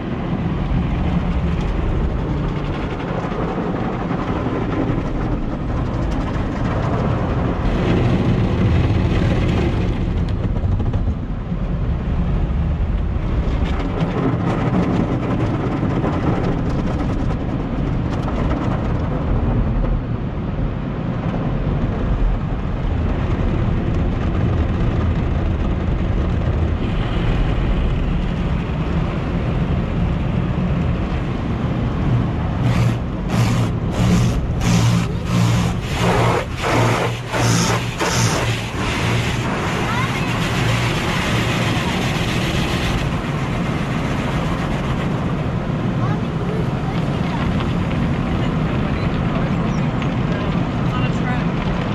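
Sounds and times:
car wash machinery rumble: 0.0s - 51.9s
water spraying on car: 30.7s - 48.8s.

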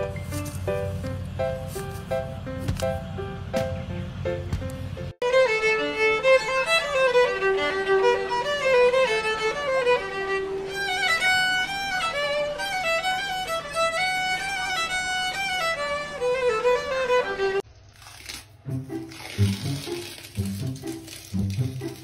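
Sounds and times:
violin solo melody: 5.2s - 17.6s.

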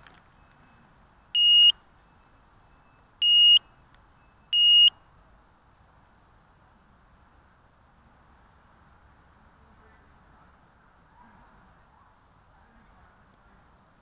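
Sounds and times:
short high-pitched beeps: 0.6s - 8.3s.

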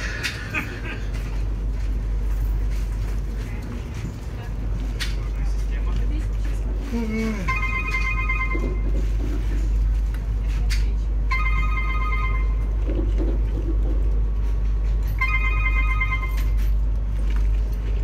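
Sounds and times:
train low rumble: 0.0s - 18.0s
mobile phone ringtone: 7.5s - 9.0s, 11.3s - 12.7s, 15.2s - 16.6s.

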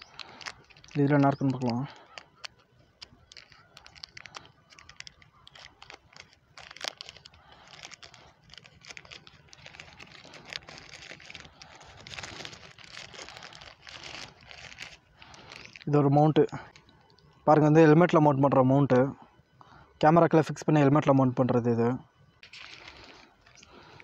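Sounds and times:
plastic bag crinkling: 0.0s - 17.4s, 22.4s - 24.0s.

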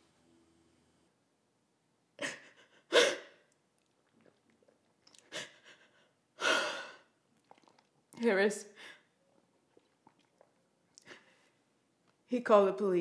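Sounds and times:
woman sobbing: 2.2s - 3.4s.

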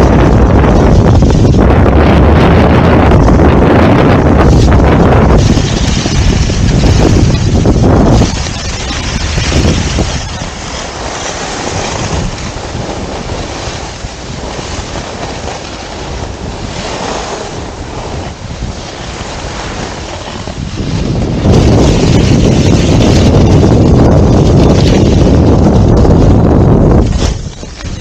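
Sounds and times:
skis scraping on snow: 0.0s - 26.4s
wind buffeting microphone: 0.0s - 28.0s.

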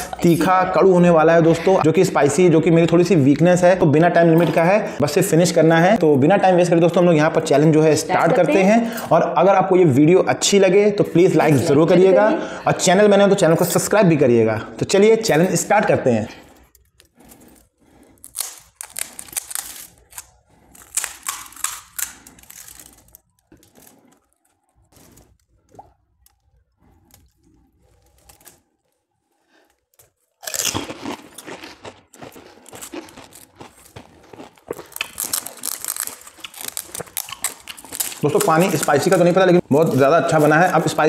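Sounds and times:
loud crunching and chewing: 0.0s - 0.6s, 15.2s - 41.0s
crisp shells cracking: 16.5s - 41.0s.

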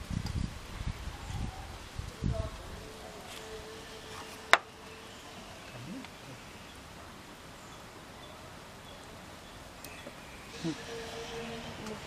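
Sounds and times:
rural outdoor hiss: 0.0s - 12.0s.

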